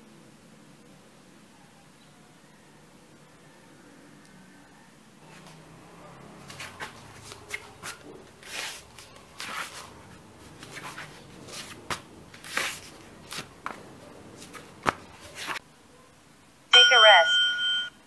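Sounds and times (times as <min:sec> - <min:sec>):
rustling on foam exercise mat: 0:05.2 - 0:15.6.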